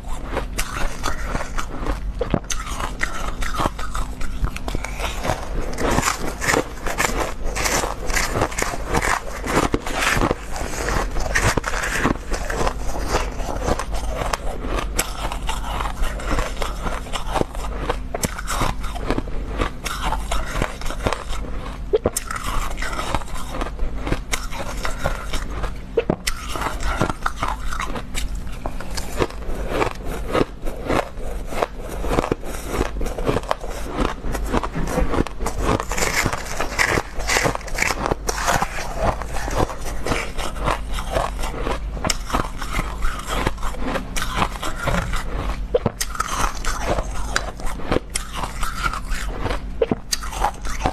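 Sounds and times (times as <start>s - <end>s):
chewing crushed ice: 0.0s - 50.9s.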